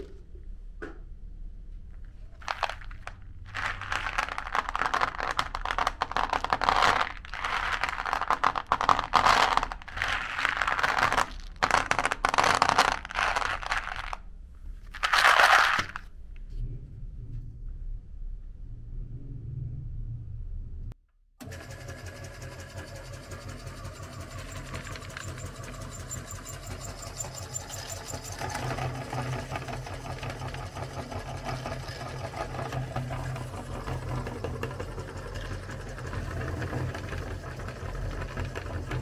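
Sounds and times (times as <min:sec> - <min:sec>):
candies rattling on plastic tray: 0:02.4 - 0:14.2, 0:14.9 - 0:16.1.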